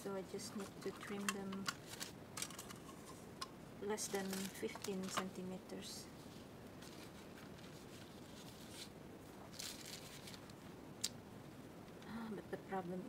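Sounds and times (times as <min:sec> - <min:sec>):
paper sheet rustling: 0:00.6 - 0:03.2, 0:04.0 - 0:05.4, 0:06.1 - 0:10.5.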